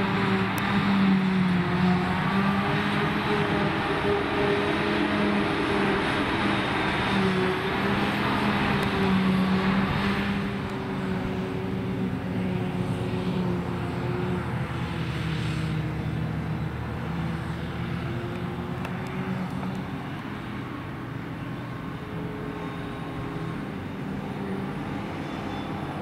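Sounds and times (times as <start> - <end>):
harvester engine droning: 0.0 - 26.0.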